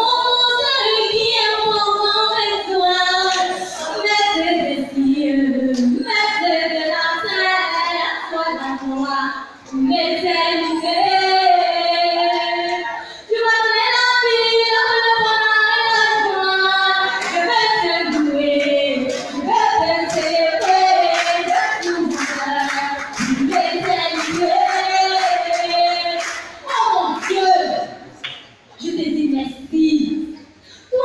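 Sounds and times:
voices singing together: 0.0s - 28.0s
rhythmic hand clapping: 15.7s - 28.5s.

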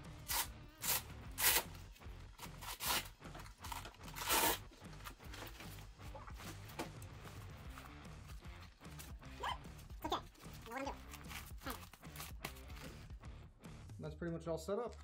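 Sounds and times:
background music: 0.0s - 15.0s
velcro straps tearing: 0.1s - 1.8s, 2.4s - 5.1s, 10.4s - 13.0s.

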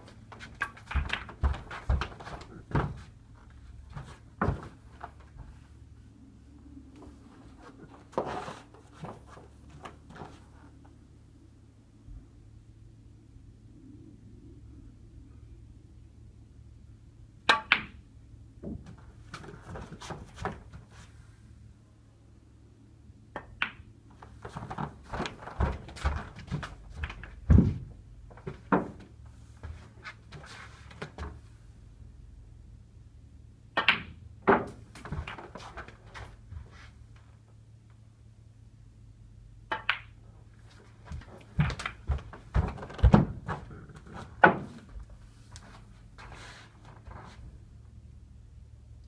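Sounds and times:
dull knocks and thumps: 0.3s - 3.1s, 3.9s - 5.6s, 24.5s - 29.1s, 41.0s - 45.1s.

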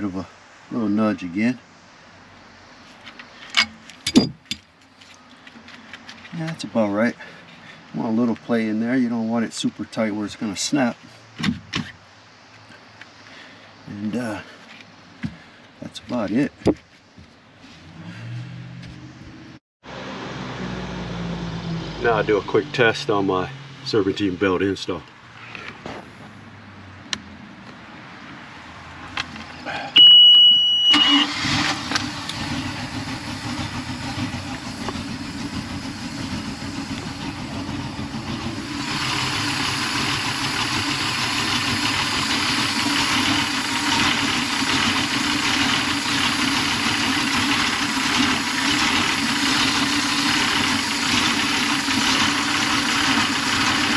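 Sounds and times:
high warning buzzer beep: 30.0s - 31.2s
boat engine idling: 32.0s - 53.9s.

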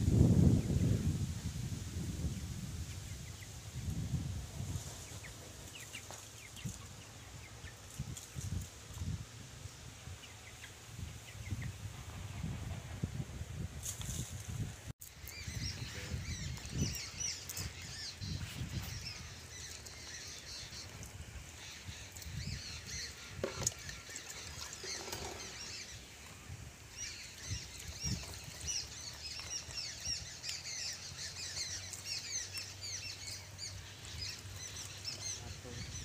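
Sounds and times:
birds chirping: 2.2s - 13.0s, 15.0s - 36.0s.

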